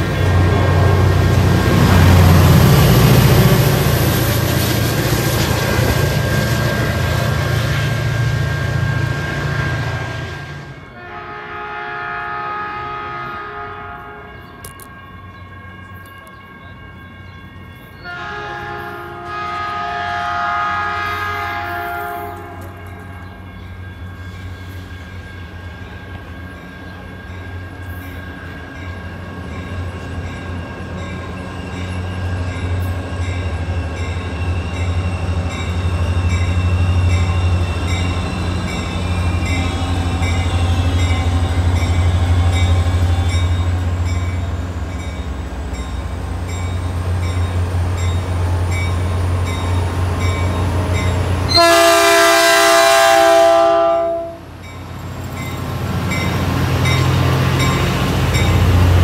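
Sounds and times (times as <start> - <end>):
diesel locomotive engine: 0.0 - 59.0
train air horn blast: 9.7 - 14.6, 18.0 - 23.1, 51.5 - 54.5.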